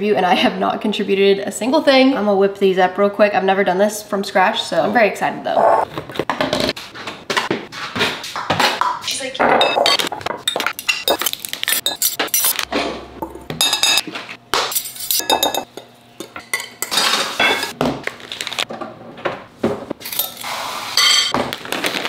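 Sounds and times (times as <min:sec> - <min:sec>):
utensils clinking against glass: 0:09.6 - 0:12.7, 0:13.6 - 0:14.1, 0:14.7 - 0:15.7, 0:16.5 - 0:17.8, 0:20.0 - 0:21.3.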